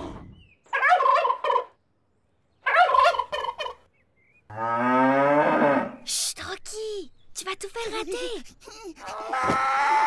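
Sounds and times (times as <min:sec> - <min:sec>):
gobbling calls from loudspeaker: 0:02.7 - 0:03.8.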